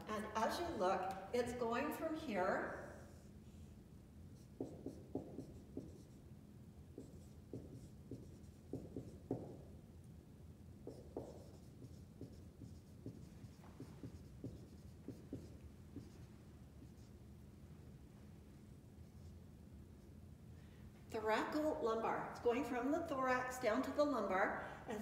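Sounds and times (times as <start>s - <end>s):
marker squeaking on whiteboard: 10.9s - 17.1s.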